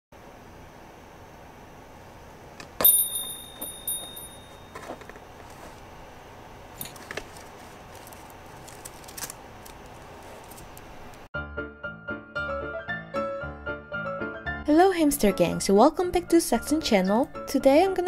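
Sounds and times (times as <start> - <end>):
small bell ringing: 2.8 - 4.8.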